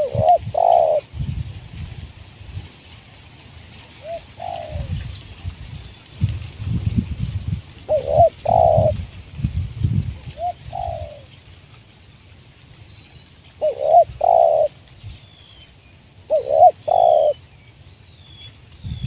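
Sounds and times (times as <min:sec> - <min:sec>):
dove cooing: 0:00.0 - 0:01.1, 0:04.0 - 0:05.0, 0:07.9 - 0:09.0, 0:10.2 - 0:11.3, 0:13.6 - 0:14.8, 0:16.3 - 0:17.4.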